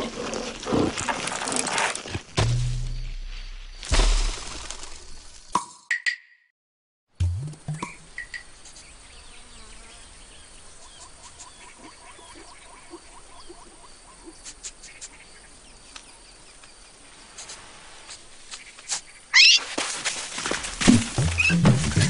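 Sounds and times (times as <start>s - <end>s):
insects buzzing and chirping: 7.6s - 22.0s.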